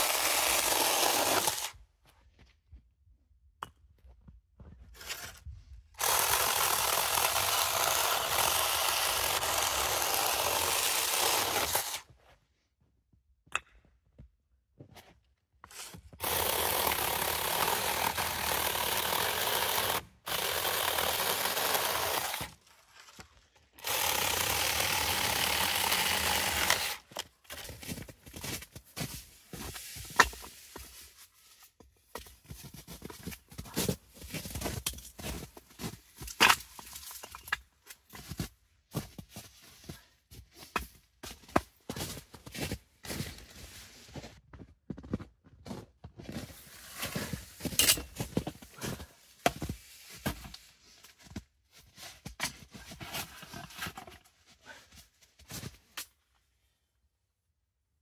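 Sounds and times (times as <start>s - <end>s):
electric chainsaw cutting wood: 0.0s - 1.7s, 6.0s - 12.0s, 16.2s - 22.6s, 23.8s - 27.2s.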